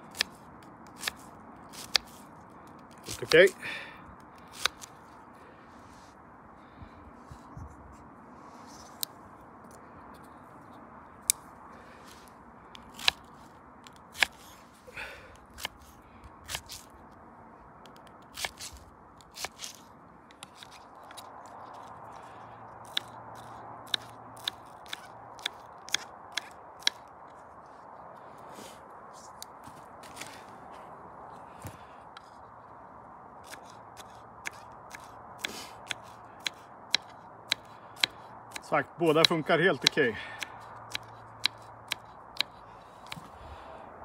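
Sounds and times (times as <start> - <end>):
onion crunching: 12.8 - 14.6, 15.5 - 17.0, 17.8 - 22.0.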